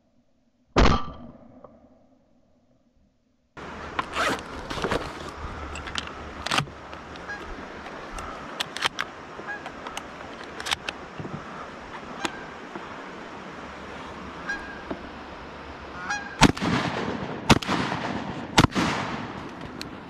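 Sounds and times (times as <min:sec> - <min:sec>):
steady hiss: 0:03.6 - 0:20.0
shells loaded into shotgun: 0:03.9 - 0:11.2.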